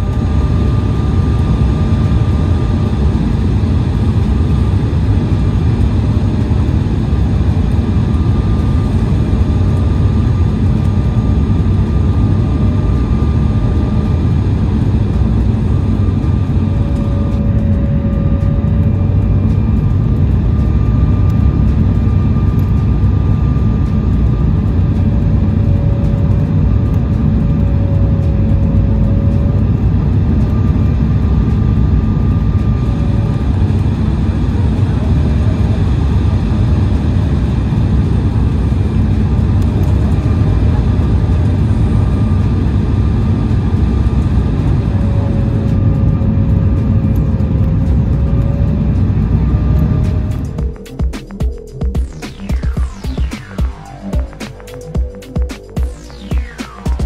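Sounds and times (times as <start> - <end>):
faint engine whine: 0.0 - 57.0
jet engines and rushing air: 0.0 - 57.0.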